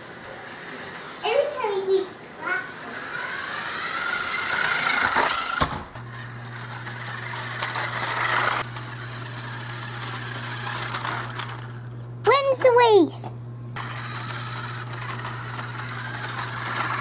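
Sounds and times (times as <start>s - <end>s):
toy car electric motor whining: 0.0s - 11.8s, 13.8s - 17.0s
steady low hum: 0.0s - 17.0s.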